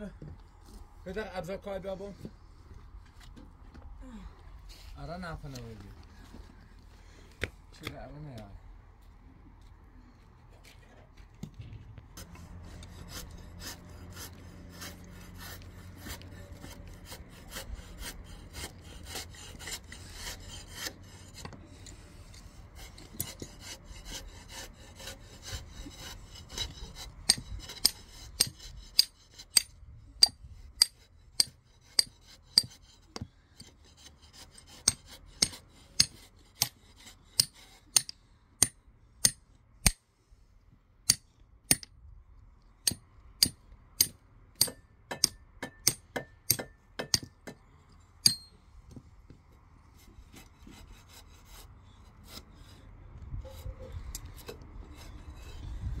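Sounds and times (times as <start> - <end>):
rasping on wood: 12.2 - 39.4.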